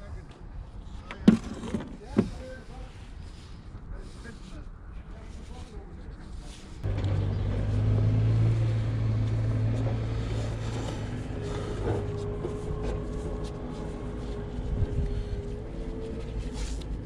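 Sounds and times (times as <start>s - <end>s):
diesel engine running: 6.8s - 17.0s.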